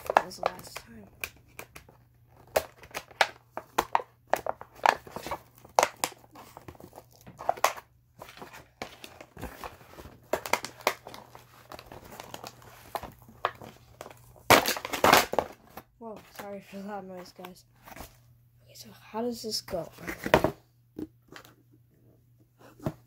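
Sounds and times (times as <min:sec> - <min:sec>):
plastic packaging crinkling: 0:02.2 - 0:16.6.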